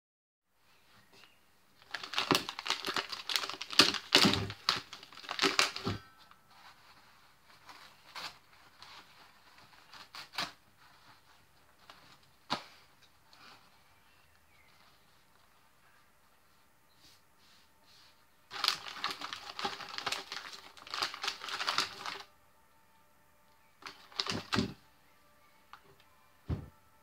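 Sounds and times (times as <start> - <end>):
paper bag crinkling: 1.8 - 12.6, 18.5 - 22.3, 23.8 - 24.8.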